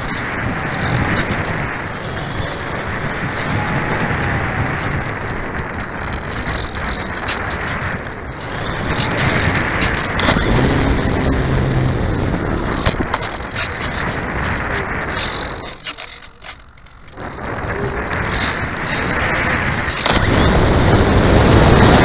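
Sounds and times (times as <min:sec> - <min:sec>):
rushing airflow and rattle: 0:08.9 - 0:15.8, 0:17.2 - 0:22.0
low steady hum: 0:10.2 - 0:13.6.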